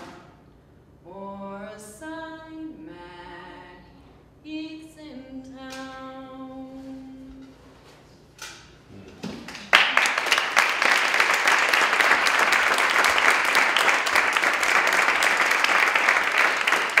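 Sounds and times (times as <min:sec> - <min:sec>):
audience applause: 0:09.7 - 0:17.0.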